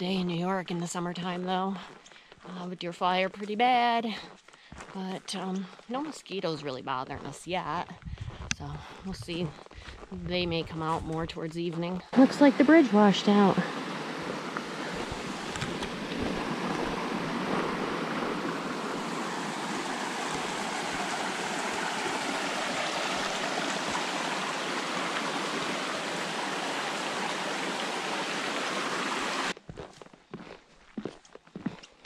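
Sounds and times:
water rushing over rocks: 12.2s - 29.6s.

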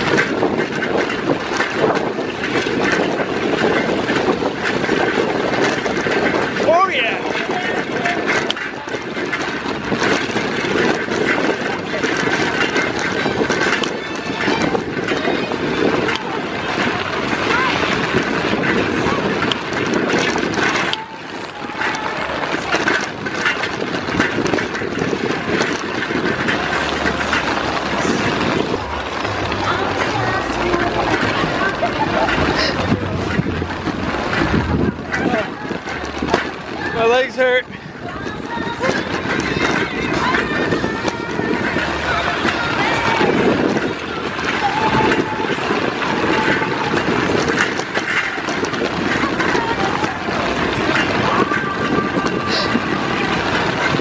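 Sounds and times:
bike rolling on ice: 0.0s - 54.0s
wind buffeting microphone: 0.0s - 54.0s.

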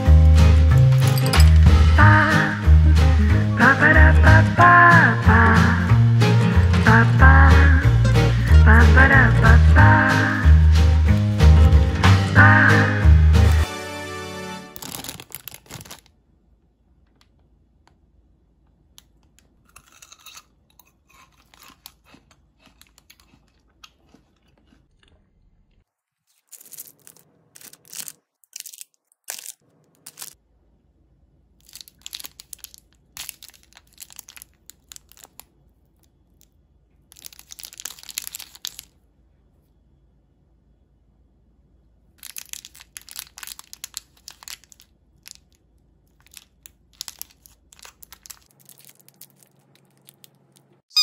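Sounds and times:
wrappers crinkling and tearing: 14.7s - 16.2s, 26.1s - 30.4s, 31.6s - 36.1s, 37.1s - 39.0s, 42.2s - 50.8s.

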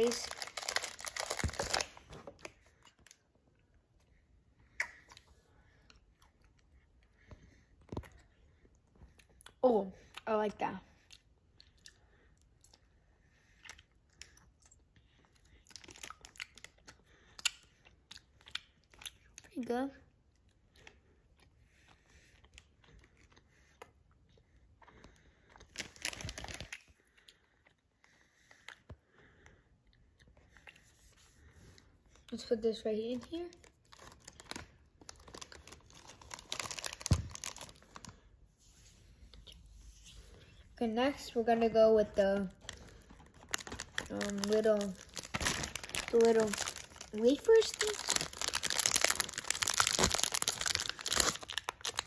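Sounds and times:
plastic bag crinkling: 0.0s - 3.2s, 25.7s - 26.8s, 33.6s - 38.2s, 42.6s - 52.0s.

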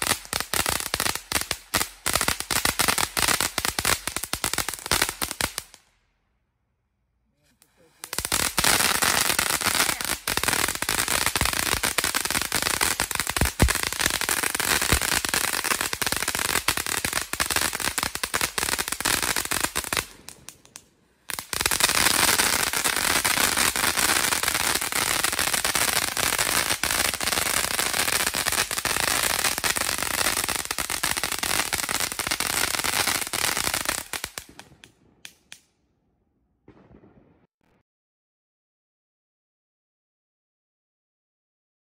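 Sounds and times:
firework fountain crackling: 0.0s - 5.8s, 7.5s - 35.6s
firework pops: 36.7s - 37.5s.

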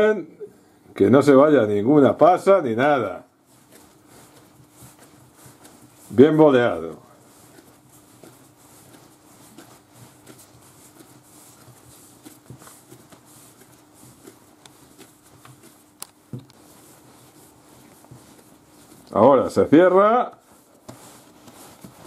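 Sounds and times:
dough patting on countertop: 3.5s - 19.2s, 20.3s - 22.0s.

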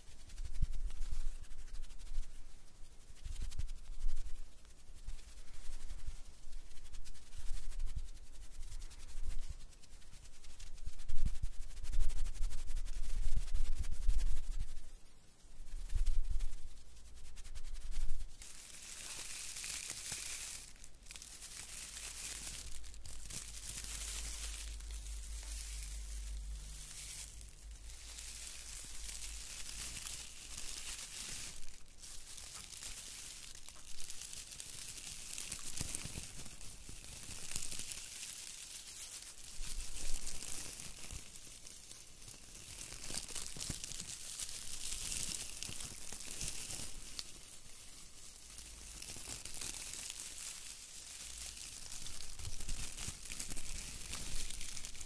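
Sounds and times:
plastic pine needles crinkling: 15.7s - 55.0s.

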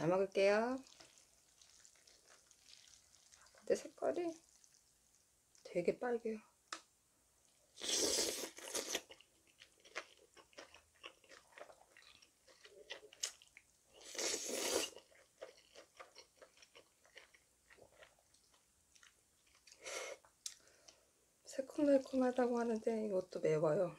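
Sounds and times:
person slurping noodles: 7.8s - 9.0s, 14.1s - 15.0s.

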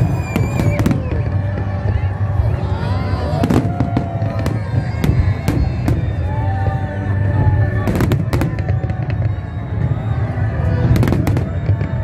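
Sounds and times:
firework bangs: 0.0s - 2.2s, 10.8s - 12.0s
music: 0.0s - 12.0s.

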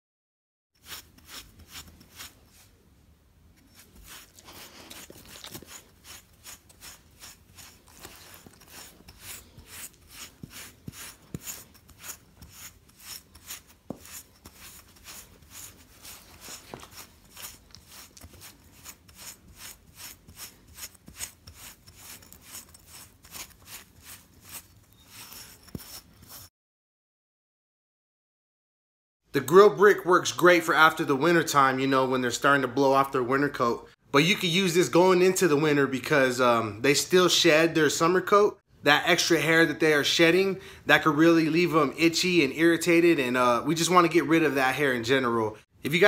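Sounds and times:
brick rasping over dog's coat: 3.7s - 26.5s.

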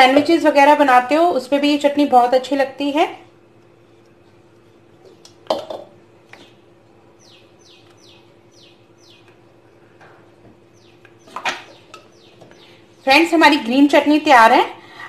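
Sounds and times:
faint hum: 0.0s - 15.0s
bird chirping: 6.4s - 9.5s, 10.6s - 13.4s.

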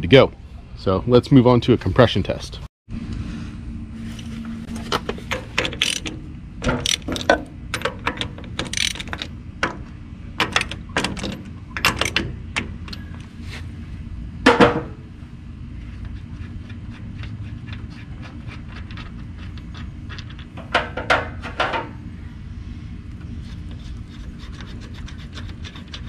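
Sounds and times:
metal tools clinking: 4.7s - 9.3s
ratchet wrench clicking: 5.3s - 9.3s.

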